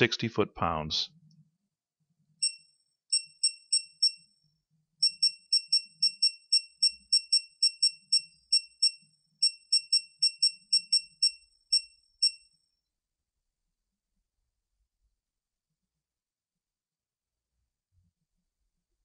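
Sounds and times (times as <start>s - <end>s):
torque wrench beeping: 2.4s - 4.3s, 5.0s - 12.4s.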